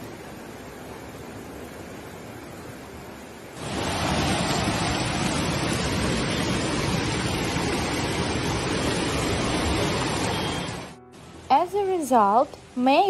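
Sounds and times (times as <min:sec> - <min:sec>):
floodwater roaring down a street: 0:00.0 - 0:13.0.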